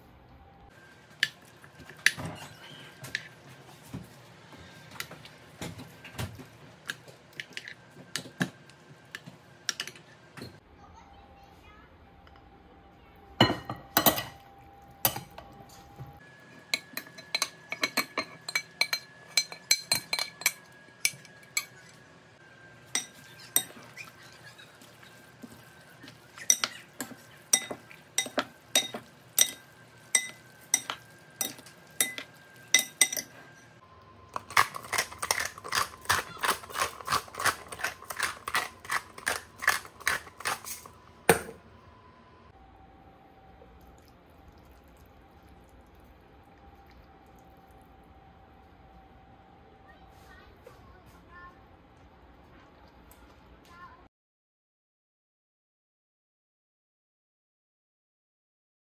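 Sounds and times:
utensils clinking against glass bowl: 16.7 - 22.0, 22.9 - 33.7, 34.4 - 41.4
pepper mill grinding: 34.3 - 41.0.

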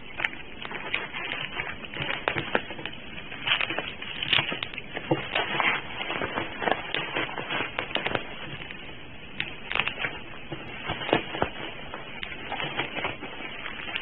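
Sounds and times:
bubble wrap crackling: 0.0 - 14.0.

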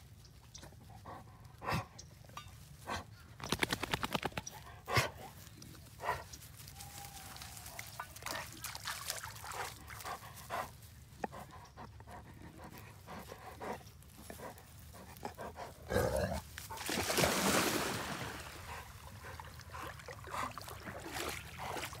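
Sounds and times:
dog panting: 0.7 - 2.0, 9.4 - 16.1.

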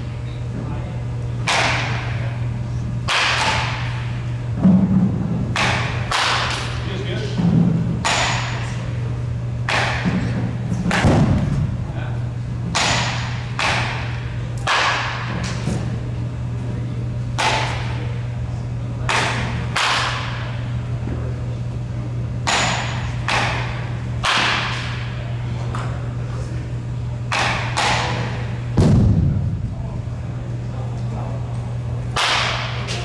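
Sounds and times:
low hum: 0.0 - 33.0
bat hitting baseballs: 1.4 - 2.2, 3.0 - 6.8, 7.4 - 8.8, 9.6 - 11.8, 12.6 - 15.9, 17.4 - 18.0, 19.0 - 20.6, 22.4 - 25.9, 27.3 - 29.6, 32.1 - 33.0.

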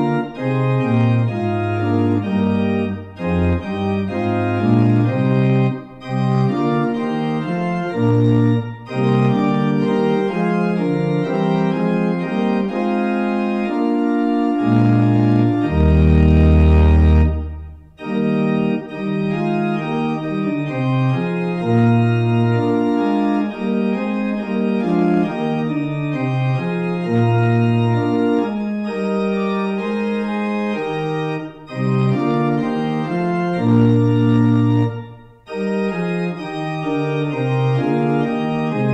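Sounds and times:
deep organ pedal bass note: 0.0 - 29.0
organ playing held chords: 0.0 - 38.9.

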